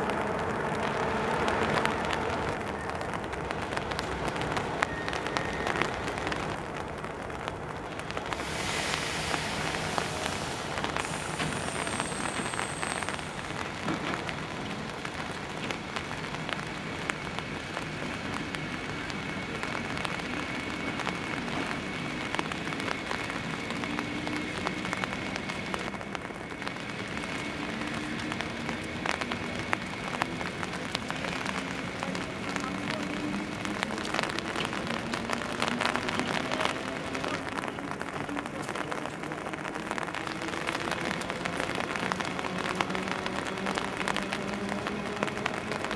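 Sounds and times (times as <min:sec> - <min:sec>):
steady hiss: 0:08.2 - 0:14.0.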